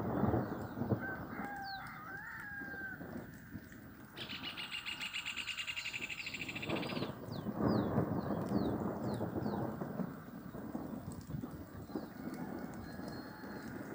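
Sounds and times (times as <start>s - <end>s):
wavering bird call: 4.2s - 7.2s.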